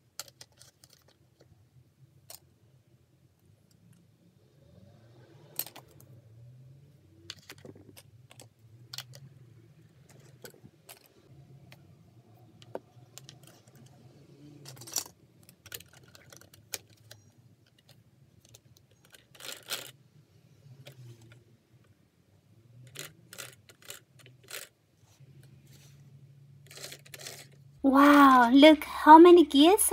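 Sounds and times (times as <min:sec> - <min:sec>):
plastic pieces clicking together: 0:14.6 - 0:19.9, 0:22.9 - 0:24.7.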